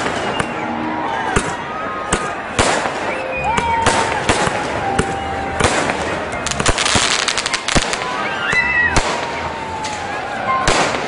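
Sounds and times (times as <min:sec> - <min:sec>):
fireworks crackling: 0:00.0 - 0:00.7, 0:01.4 - 0:11.0
fireworks banging: 0:00.0 - 0:11.0.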